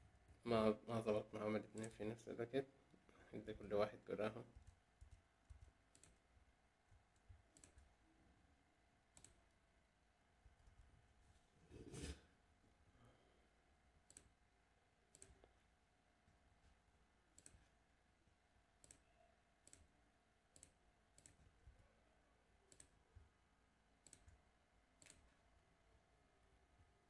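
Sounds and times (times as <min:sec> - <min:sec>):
computer mouse clicking: 0:01.8 - 0:02.0, 0:04.6 - 0:06.2, 0:06.9 - 0:08.0, 0:09.1 - 0:09.6, 0:14.0 - 0:14.4, 0:15.1 - 0:15.5, 0:17.3 - 0:17.7, 0:18.8 - 0:19.0, 0:19.6 - 0:19.9, 0:20.5 - 0:21.6, 0:22.7 - 0:23.0, 0:24.0 - 0:24.4, 0:25.0 - 0:25.3.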